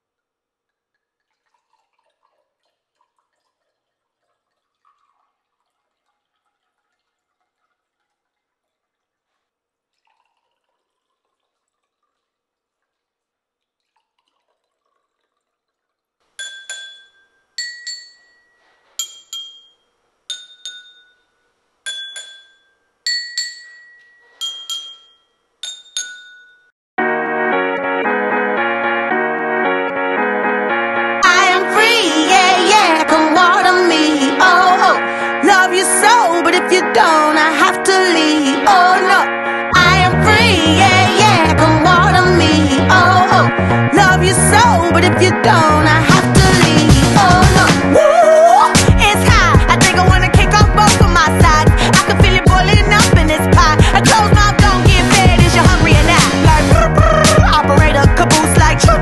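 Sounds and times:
water pouring into glasses: 0:00.8 - 0:18.1
glass clinks: 0:16.4 - 0:26.7
spoon striking ringing glasses: 0:16.4 - 0:26.7
music: 0:27.0 - 0:59.0.

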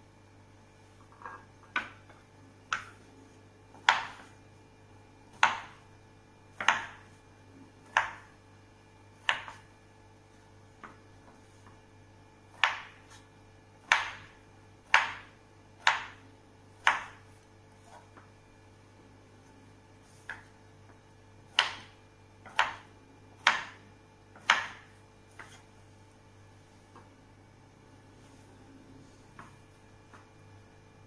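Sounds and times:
knife chopping on wooden board: 0:01.1 - 0:03.0, 0:03.7 - 0:04.4, 0:05.3 - 0:05.8, 0:06.6 - 0:07.1, 0:07.8 - 0:08.3, 0:09.2 - 0:09.7, 0:12.5 - 0:16.2, 0:16.8 - 0:17.2, 0:20.1 - 0:20.5, 0:21.5 - 0:23.8, 0:24.4 - 0:25.7.

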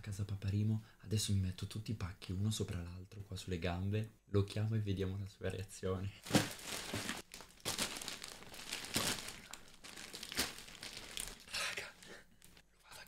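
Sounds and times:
plastic mailers crinkling: 0:06.2 - 0:12.6.

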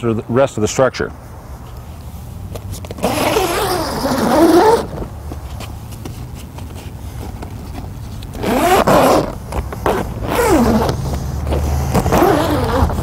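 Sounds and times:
zipper rasping open: 0:02.8 - 0:05.1, 0:06.2 - 0:13.0.

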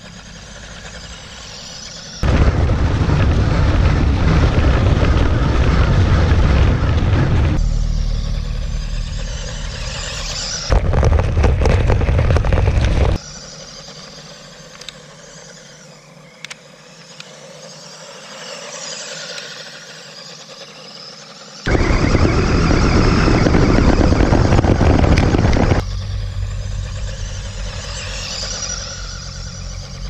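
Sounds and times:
small electric motor whining: 0:00.0 - 0:30.0
wind buffeting on microphone: 0:02.2 - 0:13.2, 0:21.7 - 0:25.8.

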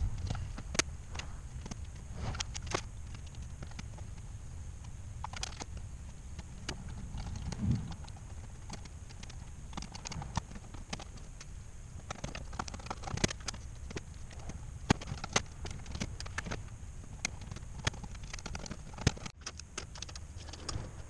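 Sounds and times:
low hum: 0:00.0 - 0:21.0.

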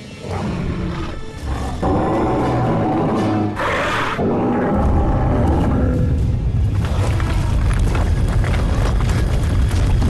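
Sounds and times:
documentary soundtrack music: 0:00.0 - 0:10.0
deep low rumble: 0:04.5 - 0:10.0.

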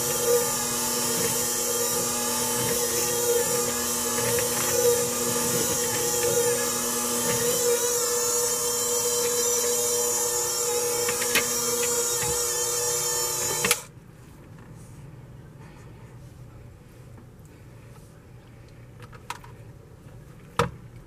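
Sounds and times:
hand mixer running: 0:00.0 - 0:13.9.

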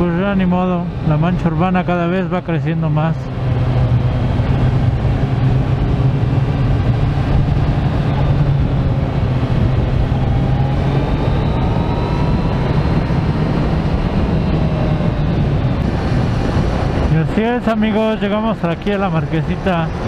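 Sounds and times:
motorcycle engine cruising: 0:00.0 - 0:20.0
road noise: 0:00.0 - 0:20.0.

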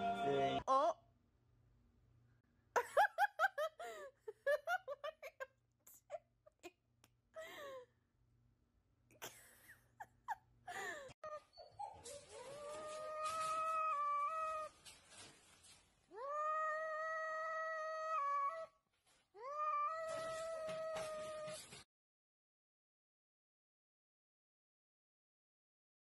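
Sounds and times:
cat meowing long: 0:12.6 - 0:14.7, 0:16.1 - 0:18.7, 0:19.4 - 0:21.5.

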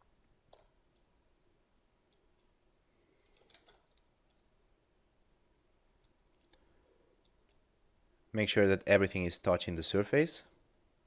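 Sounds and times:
computer mouse clicks: 0:00.5 - 0:01.1, 0:03.2 - 0:04.5, 0:06.0 - 0:07.6.

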